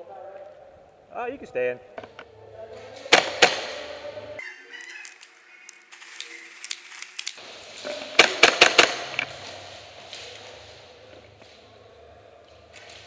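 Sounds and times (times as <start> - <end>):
airsoft gunfire: 3.1 - 4.0, 8.0 - 9.5.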